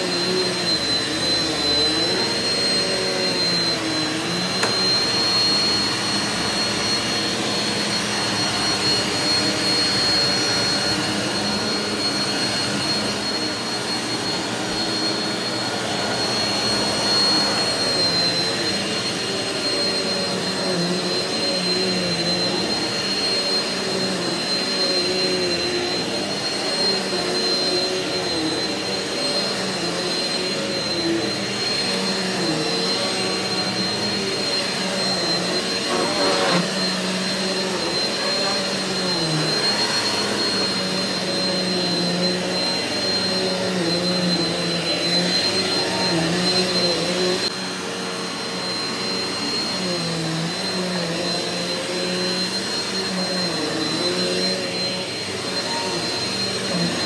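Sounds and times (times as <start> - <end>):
upright vacuum cleaner running: 0.0 - 57.0.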